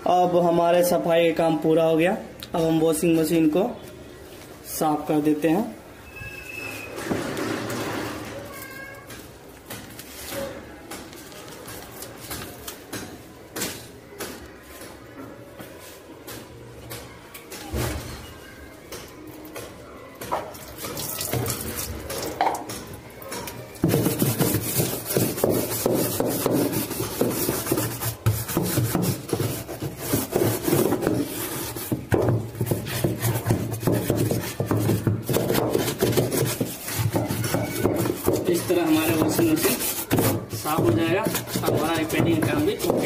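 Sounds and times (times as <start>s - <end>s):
hand scrubbing metal tub: 23.8s - 43.0s.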